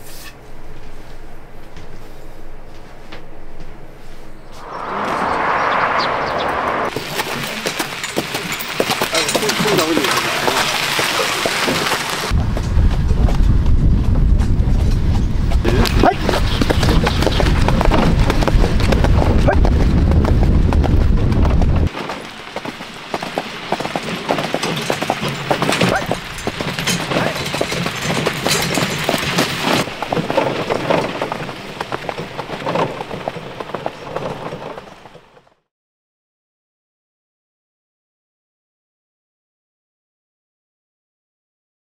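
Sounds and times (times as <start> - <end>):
loud low rumble: 4.5 - 6.9
horse hooves clip-clopping on dirt: 6.9 - 35.6.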